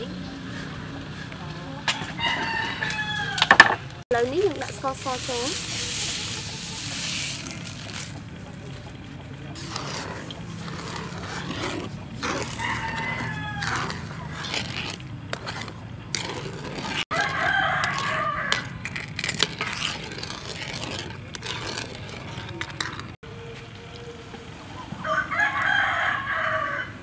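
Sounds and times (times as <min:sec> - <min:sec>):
wooden spoon stirring in metal pan: 0:00.3 - 0:23.2
rooster crowing: 0:01.9 - 0:03.8, 0:12.2 - 0:14.6, 0:17.1 - 0:18.8, 0:25.0 - 0:27.0.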